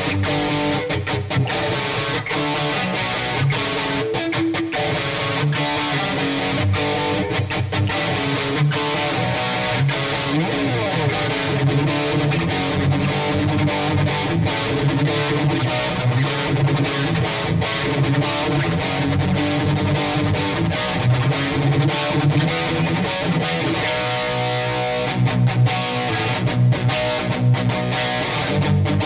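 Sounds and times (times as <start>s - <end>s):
distorted electric guitar: 0.0s - 29.0s.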